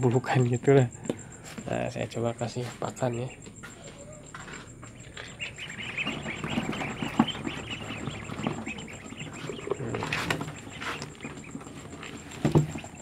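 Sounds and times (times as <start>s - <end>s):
ducklings peeping: 0.4s - 13.0s
bills pecking at feed: 2.5s - 13.0s.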